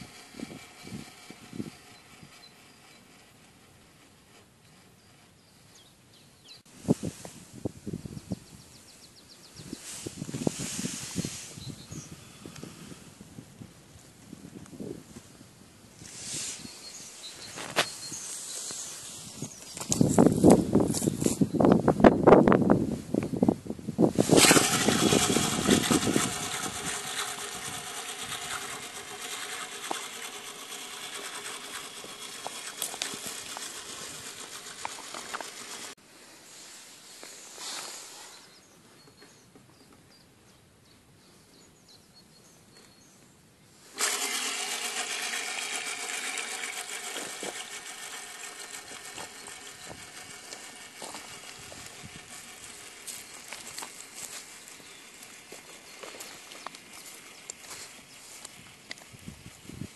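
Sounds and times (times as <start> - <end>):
clockwork motor whirring: 0.0 - 4.4, 24.3 - 36.0, 43.9 - 58.5.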